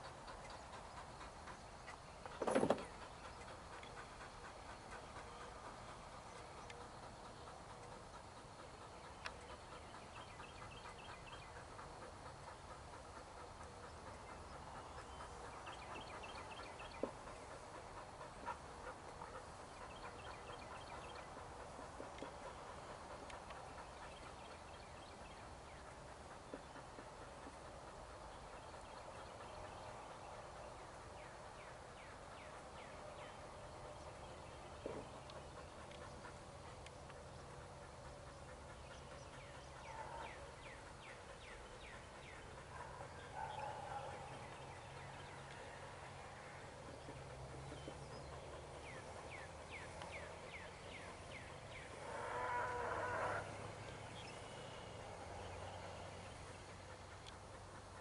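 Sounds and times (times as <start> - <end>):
birds chirping: 0.0 - 58.0
animal call: 48.9 - 56.1.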